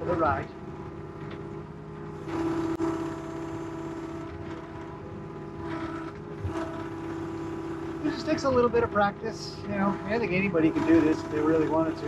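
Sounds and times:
excavator engine and hydraulics: 0:00.0 - 0:12.0.

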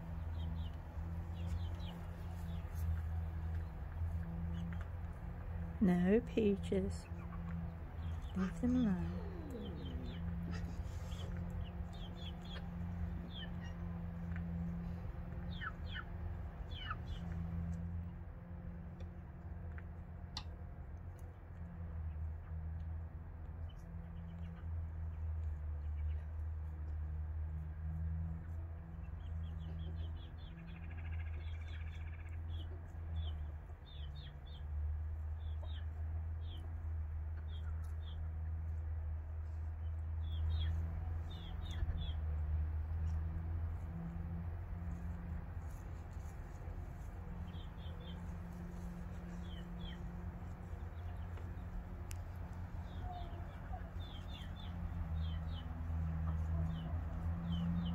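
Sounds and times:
birds chirping: 0:00.0 - 0:18.2, 0:28.8 - 0:38.6, 0:39.7 - 0:43.4, 0:44.9 - 0:57.9.

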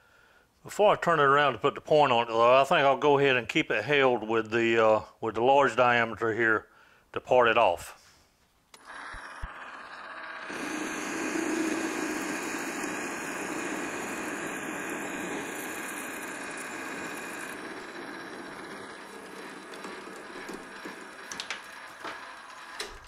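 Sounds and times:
metal lathe running: 0:08.8 - 0:23.0.

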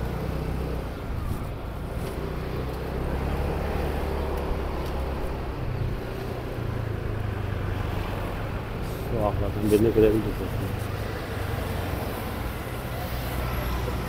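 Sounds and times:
vehicle engine and tyre hum: 0:00.0 - 0:14.0.

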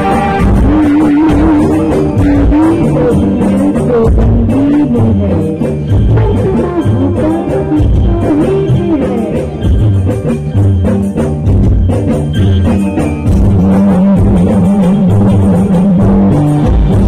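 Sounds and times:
live band music: 0:00.0 - 0:17.0
percussion: 0:00.0 - 0:17.0
man singing into microphone: 0:13.5 - 0:17.0.

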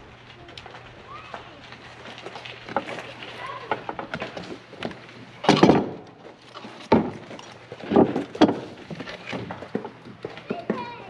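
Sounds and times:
loud thuds and clunks: 0:03.7 - 0:06.2, 0:06.8 - 0:10.9.

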